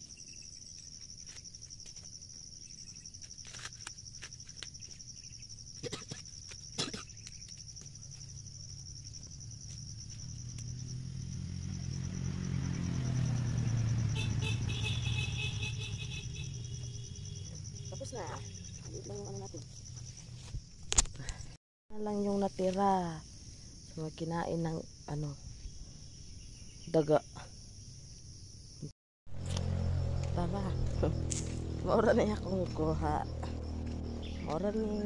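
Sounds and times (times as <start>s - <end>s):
insects droning: 0.0s - 35.0s
passing vehicle engine hum: 9.4s - 20.0s, 29.3s - 35.0s.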